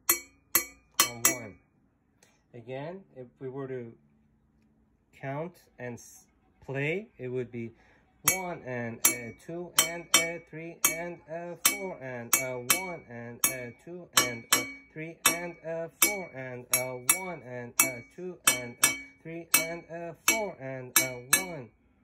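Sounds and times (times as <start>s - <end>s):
metal rod striking hoe blade: 0.0s - 1.6s, 8.3s - 21.6s.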